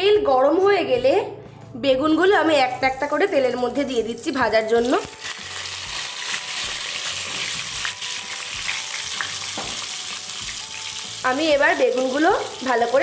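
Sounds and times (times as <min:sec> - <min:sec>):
frying in hot oil: 0:02.8 - 0:13.0.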